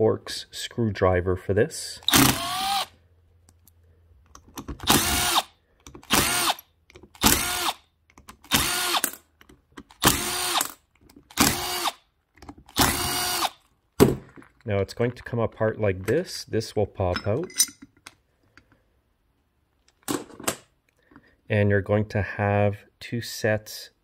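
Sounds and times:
cordless power driver whirring: 2.1 - 2.9, 4.8 - 6.6, 7.2 - 7.8, 8.5 - 9.2, 10.0 - 12.0, 12.7 - 13.5.

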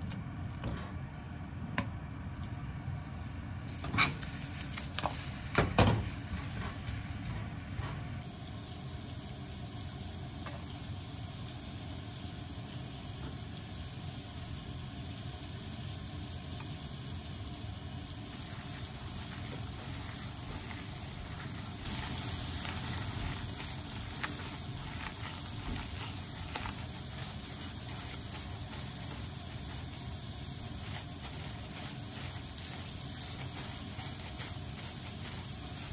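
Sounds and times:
vegetables sizzling in a pan: 3.2 - 35.9
gloved hands mixing in glass bowl: 18.3 - 35.9.

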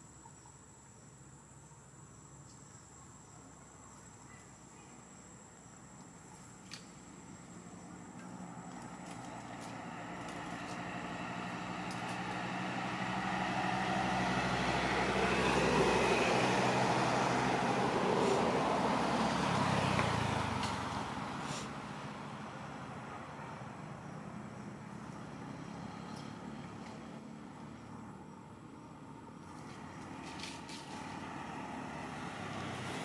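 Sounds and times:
vehicle engine passing by: 7.0 - 33.0.

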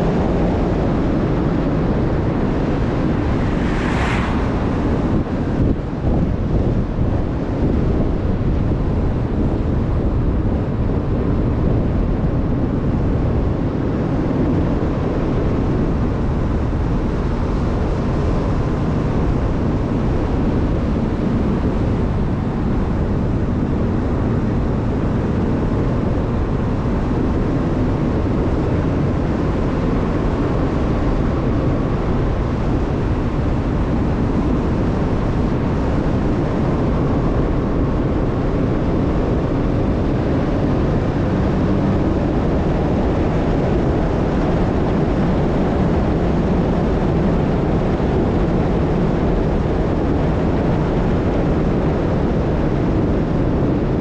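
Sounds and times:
tyre and road noise: 0.0 - 8.0, 17.4 - 49.2
wind on microphone: 0.0 - 54.0.

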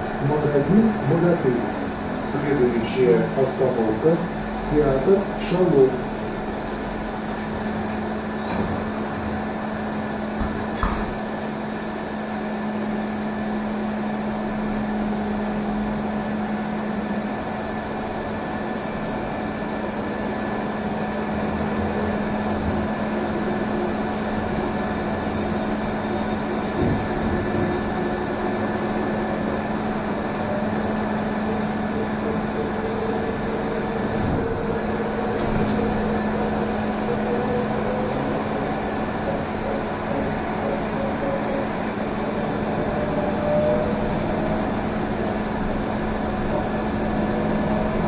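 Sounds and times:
trolleybus hum and running noise: 0.0 - 48.0.

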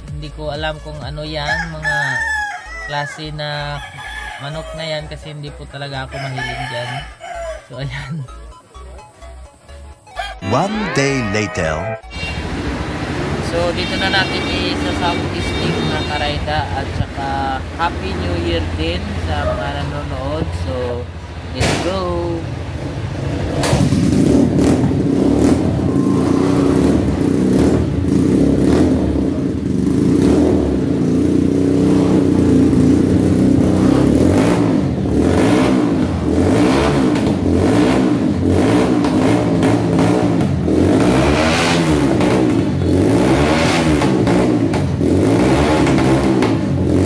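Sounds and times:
motorcycle engine revving: 21.6 - 47.0.

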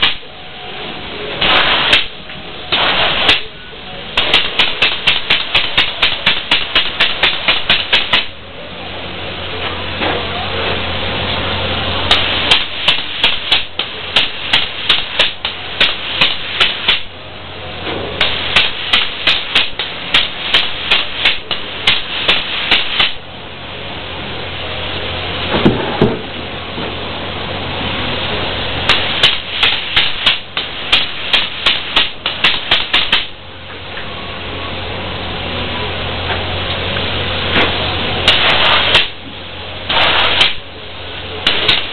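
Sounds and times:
low steady hum: 0.0 - 41.9
spray foam hiss: 1.3 - 8.4, 10.5 - 17.2, 18.0 - 25.5, 27.0 - 33.4, 37.4 - 41.9
rapid clicking: 4.2 - 8.4, 12.1 - 17.1, 18.2 - 23.2, 28.9 - 33.3.

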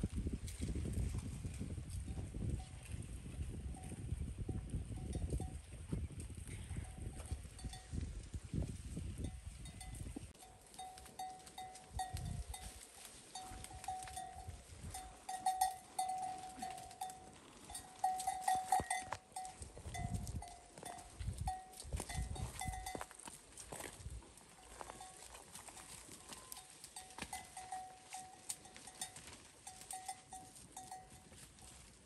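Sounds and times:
wind rumble on microphone: 0.0 - 10.4, 11.8 - 15.8, 17.4 - 25.0
cow bell clanking: 6.8 - 8.0, 9.2 - 23.9, 24.6 - 31.8.

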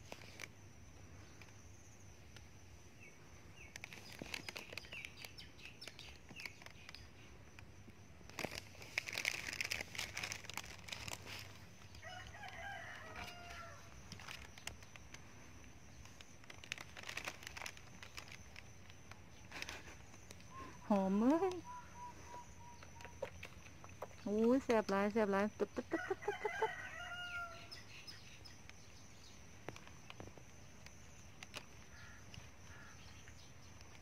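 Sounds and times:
high chirping calls: 20.5 - 23.5.

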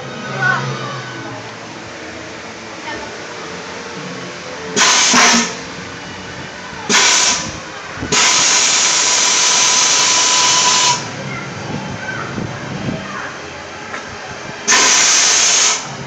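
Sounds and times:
air blower rushing hiss: 4.7 - 5.9, 6.9 - 11.2, 14.6 - 16.0.

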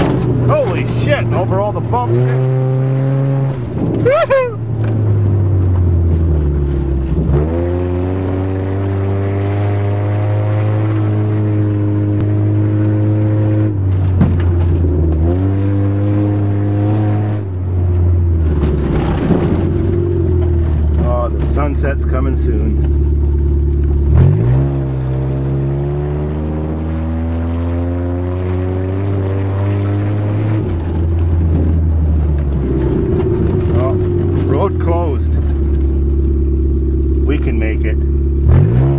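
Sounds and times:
car engine running: 0.0 - 38.9.

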